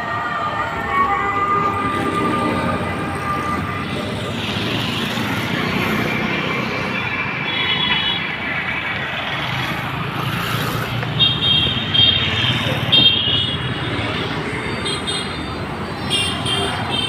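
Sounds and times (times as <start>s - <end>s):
motorcycles and vehicles passing: 0.0s - 17.0s.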